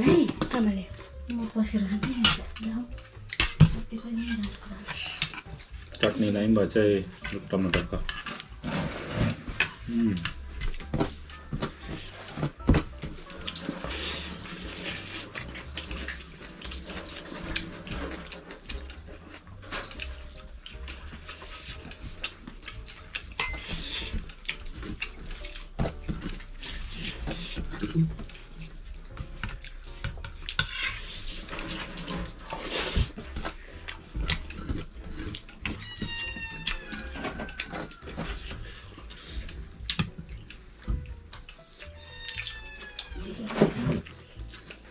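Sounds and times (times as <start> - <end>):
chewing: 0.2 - 44.9
clinks and scrapes on metal plate: 7.8 - 9.8, 23.1 - 25.5, 29.4 - 33.2
cat meowing: 35.7 - 37.9, 41.8 - 43.9.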